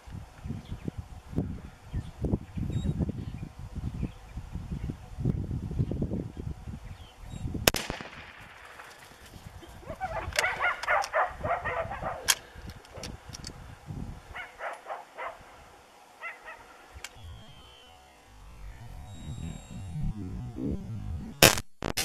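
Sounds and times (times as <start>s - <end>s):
rifle shot: 7.7s - 8.8s
sharp clicks: 19.2s - 22.0s.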